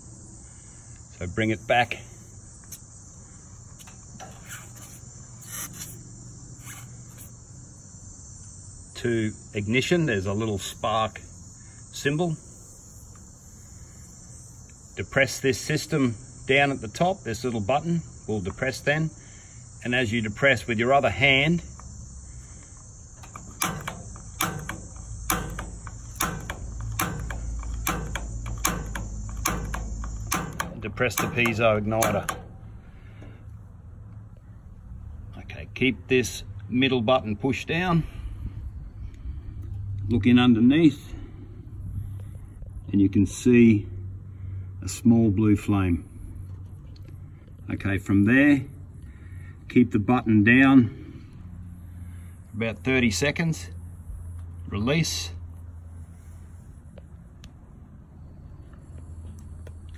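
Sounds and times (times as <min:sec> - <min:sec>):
insects chirring: 0:00.0 - 0:59.9
control knob clicks: 0:23.2 - 0:32.6.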